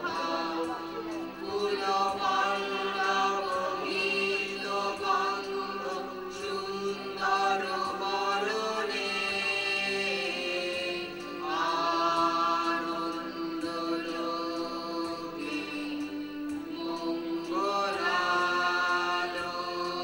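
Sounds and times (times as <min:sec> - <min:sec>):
group of voices singing: 0:00.0 - 0:20.0.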